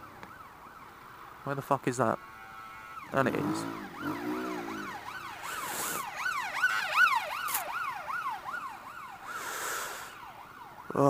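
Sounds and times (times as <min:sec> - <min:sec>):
emergency siren yelping: 0:03.0 - 0:09.4.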